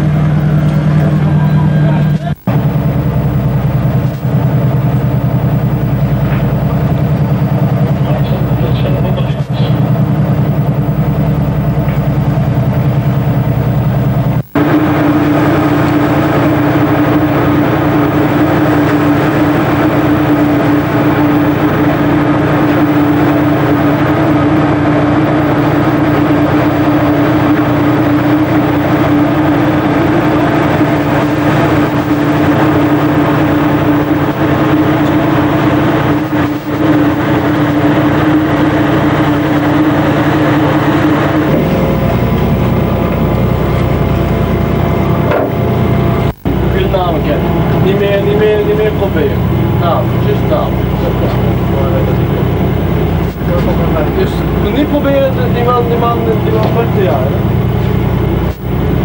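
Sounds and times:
engine drone: 0.0s - 59.0s.

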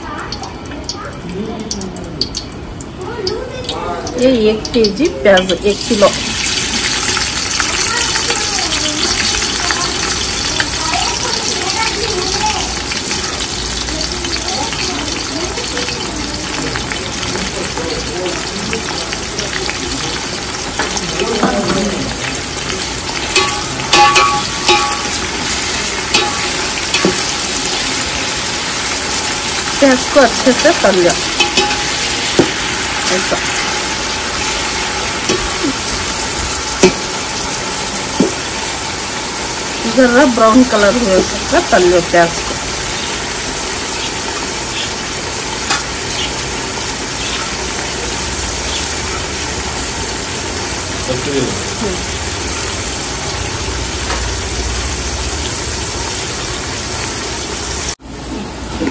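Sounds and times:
onions sizzling in hot oil: 0.0s - 58.9s
metal skimmer clanking on pot: 20.5s - 28.1s, 29.0s - 37.3s.

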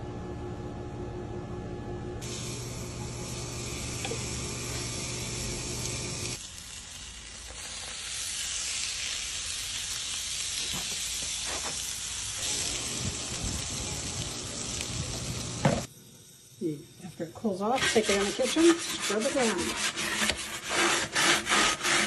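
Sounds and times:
meat sizzling on grill: 2.2s - 19.4s.

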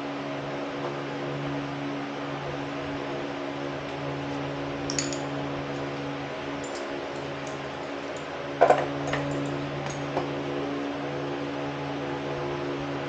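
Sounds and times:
steady electrical hum: 0.0s - 13.0s
small tools clicking: 4.9s - 5.3s, 6.6s - 8.3s.

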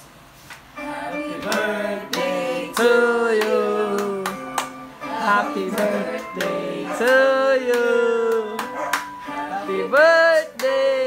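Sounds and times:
person singing: 0.8s - 11.0s
hand clapping in time: 1.4s - 4.9s, 5.6s - 9.3s, 9.9s - 10.8s.

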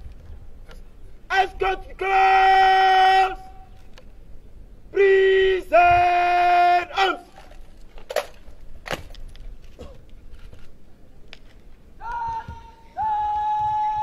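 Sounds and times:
man shouting command: 1.3s - 3.7s, 4.9s - 7.4s, 12.0s - 14.0s
sharp cracks: 7.3s - 10.1s.

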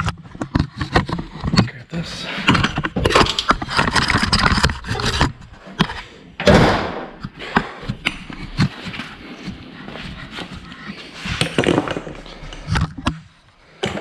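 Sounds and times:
items scraping and rattling: 0.0s - 14.0s
loud thump: 6.4s - 7.2s.

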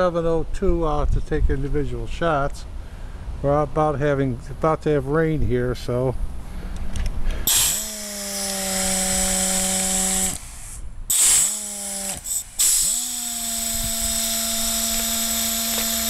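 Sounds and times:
hissing exhaust air: 6.4s - 16.0s
pneumatic hoist air motor whining: 7.4s - 16.0s.

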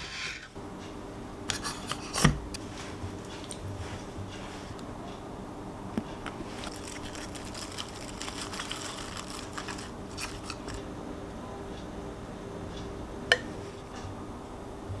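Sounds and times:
salad leaves rustling and crinkling: 6.3s - 10.8s.

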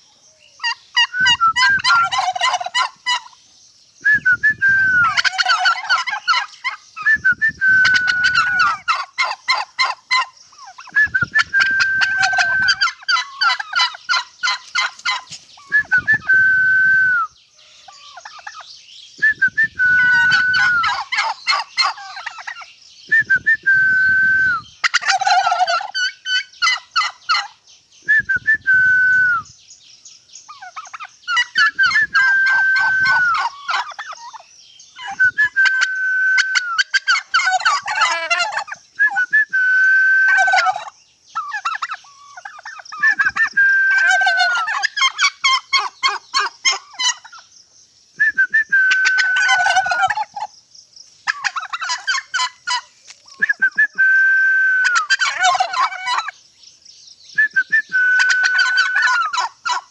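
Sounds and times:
turkey gobbling: 0.6s - 3.4s, 4.8s - 7.1s, 7.7s - 16.4s, 17.9s - 18.6s, 19.9s - 22.7s, 24.8s - 27.6s, 30.5s - 34.4s, 35.0s - 47.5s, 48.9s - 50.5s, 51.2s - 54.0s, 54.8s - 56.4s, 58.0s - 59.9s.

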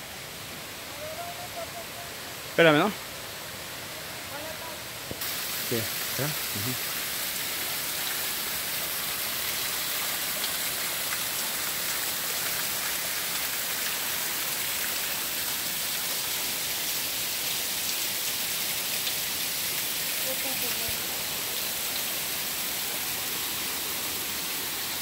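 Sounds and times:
waterfall splashing onto rock: 5.0s - 25.0s.

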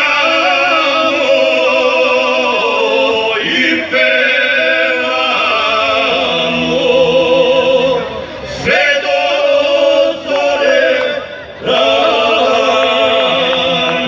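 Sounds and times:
male choir singing: 0.0s - 14.0s.

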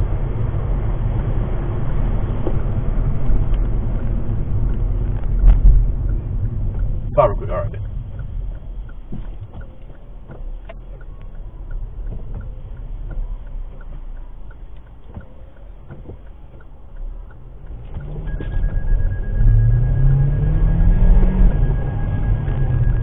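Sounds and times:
engine and road rumble: 0.0s - 23.0s
light regular ticking: 3.5s - 18.9s.

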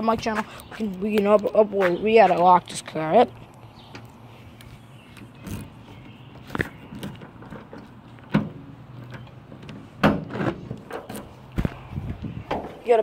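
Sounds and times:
person talking: 0.0s - 3.4s, 12.8s - 13.0s.

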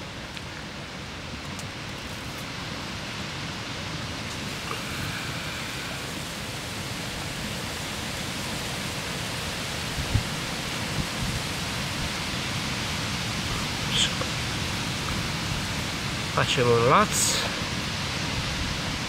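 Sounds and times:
wind buffeting microphone: 9.2s - 16.3s, 17.5s - 19.0s.

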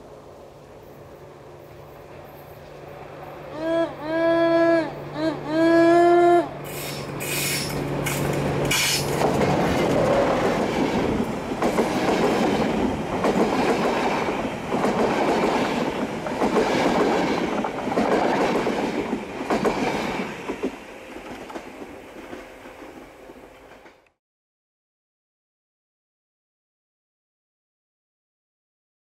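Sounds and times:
locomotive engine hum: 0.0s - 24.1s
train wheels clacking on rails: 6.6s - 24.0s.

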